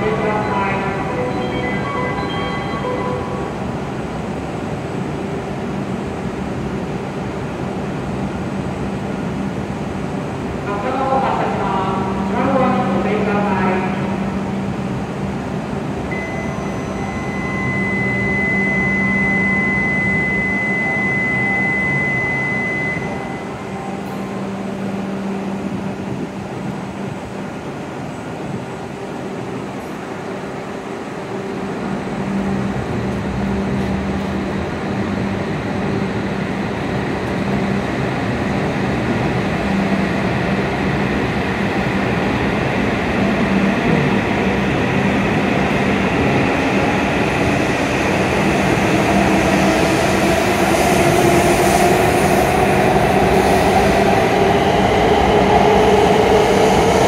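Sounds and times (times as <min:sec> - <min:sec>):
high steady tone: 0:00.0 - 0:03.9, 0:16.1 - 0:25.5
station ambience: 0:00.0 - 0:57.0
stopped train humming: 0:00.0 - 0:57.0.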